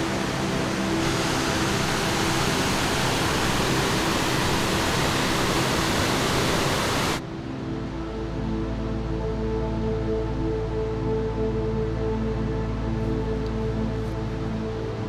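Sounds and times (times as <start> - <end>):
waterfall rushing into pool: 0.0 - 7.2.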